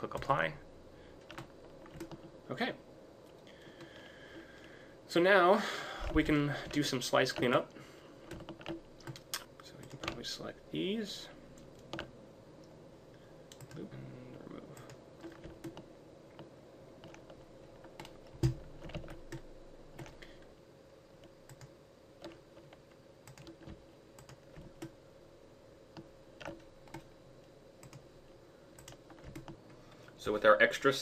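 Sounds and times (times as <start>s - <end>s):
faint steady hum: 0.0s - 31.0s
keyboard and mouse clicking: 1.2s - 2.3s, 8.3s - 10.2s, 13.5s - 13.9s, 14.8s - 20.2s, 21.2s - 25.0s, 25.9s - 27.1s, 28.8s - 29.6s.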